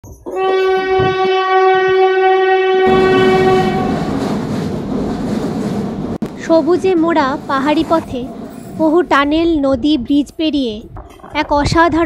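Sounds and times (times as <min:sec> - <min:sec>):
train horn blast: 0:00.3 - 0:04.2
train carriages rumbling on track: 0:02.8 - 0:12.0.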